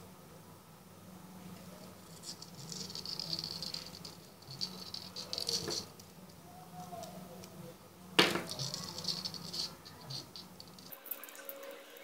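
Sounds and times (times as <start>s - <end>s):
low steady hum: 0.0s - 12.0s
scratchy rustling of wire: 1.6s - 7.6s, 8.2s - 11.5s.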